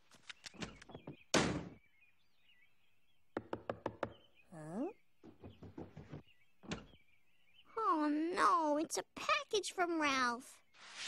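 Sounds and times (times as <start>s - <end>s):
faint bird chirps: 0.2s - 8.4s
knocking on a door: 3.4s - 4.2s, 5.2s - 6.9s.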